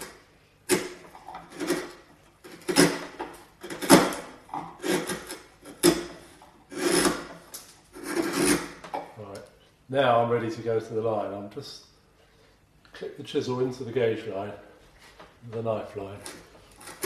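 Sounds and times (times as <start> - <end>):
chisel slicing wood: 0.0 - 8.8, 16.2 - 17.0.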